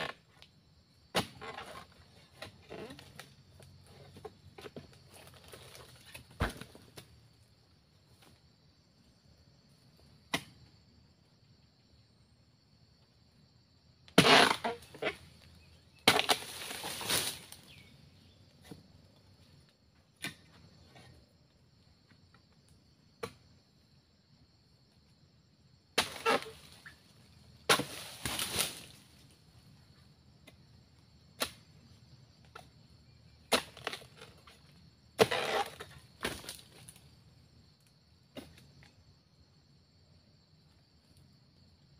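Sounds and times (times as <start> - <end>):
insects buzzing: 0.0 - 41.9
chisel chopping palm fronds: 14.1 - 14.8, 16.0 - 17.6, 26.0 - 26.6, 27.7 - 28.9, 31.4 - 31.6, 33.5 - 34.4, 35.2 - 36.8
fronds rustling and crunching: 16.1 - 17.9, 27.8 - 29.3.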